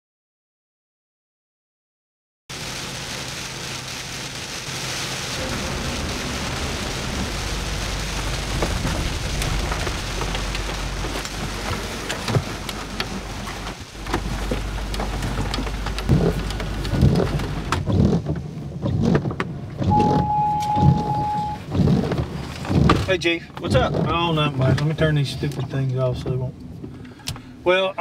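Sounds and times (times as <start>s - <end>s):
rain on a car roof: 2.5s - 28.0s
low rumble: 4.0s - 22.6s.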